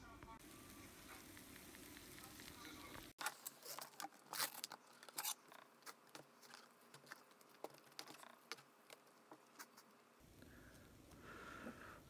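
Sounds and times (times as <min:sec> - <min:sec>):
foil lid crinkling: 0:03.2 - 0:08.6.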